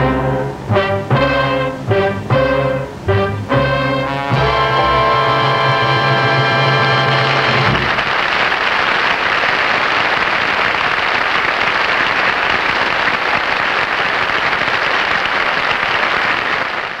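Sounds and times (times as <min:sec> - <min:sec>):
studio audience applauding: 0:06.8 - 0:17.0.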